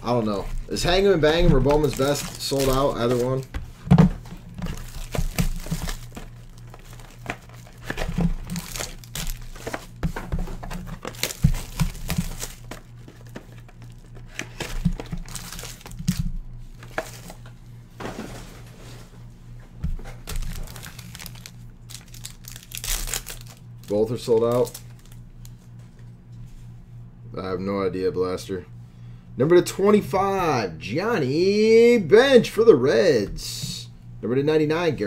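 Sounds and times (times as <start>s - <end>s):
foil packs crinkling: 0.0s - 17.5s, 20.0s - 25.6s
steady low hum: 0.0s - 35.0s.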